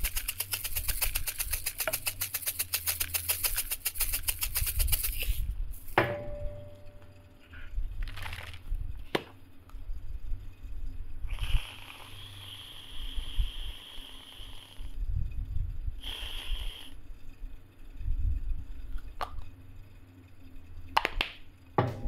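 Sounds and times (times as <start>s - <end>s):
aerosol can spraying hiss: 0.0s - 6.0s, 11.3s - 14.9s, 16.0s - 17.0s.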